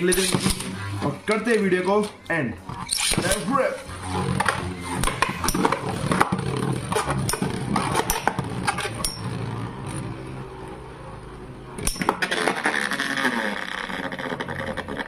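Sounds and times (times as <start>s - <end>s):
spinning tops whirring: 2.8s - 11.2s, 11.8s - 15.0s.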